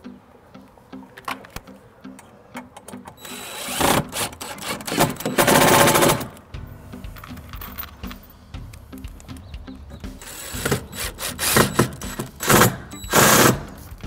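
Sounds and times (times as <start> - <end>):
cordless drill driving screws: 3.2 - 6.4, 10.2 - 13.7.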